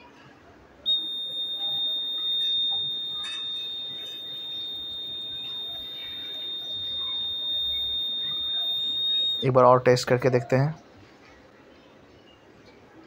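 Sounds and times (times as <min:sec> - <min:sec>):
smoke detector buzzer steady tone: 0:00.9 - 0:09.9.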